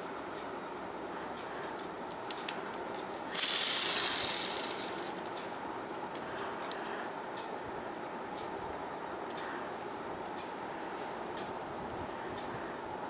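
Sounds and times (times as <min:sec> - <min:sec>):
toy motor whirring: 0:02.3 - 0:05.3.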